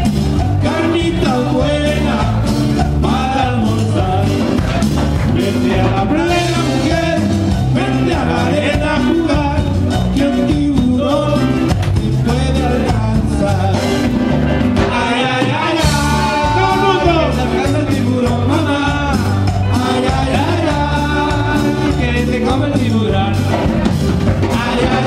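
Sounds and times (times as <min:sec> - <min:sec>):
lead singer singing: 0:00.0 - 0:25.0
live band playing dance music: 0:00.0 - 0:25.0.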